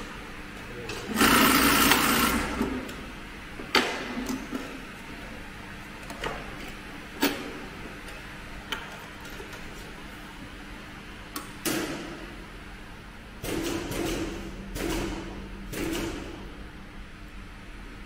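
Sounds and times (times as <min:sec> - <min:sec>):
sewing machine rushing burst: 0:01.2 - 0:02.6.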